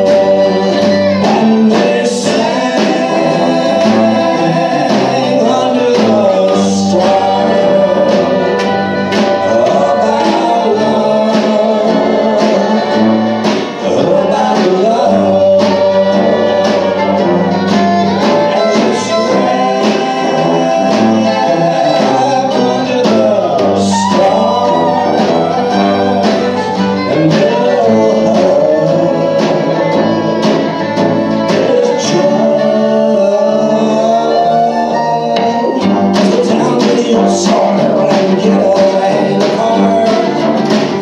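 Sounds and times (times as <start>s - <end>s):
acoustic guitar: 0.0s - 41.0s
drum kit: 0.0s - 41.0s
fiddle melody: 0.0s - 41.0s
tuba: 0.0s - 41.0s.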